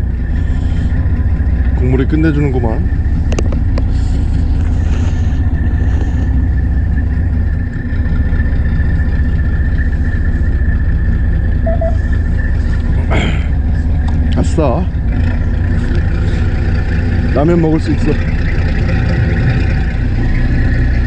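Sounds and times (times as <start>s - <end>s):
boat engine droning: 0.0s - 21.0s
short beeps: 11.6s - 12.2s.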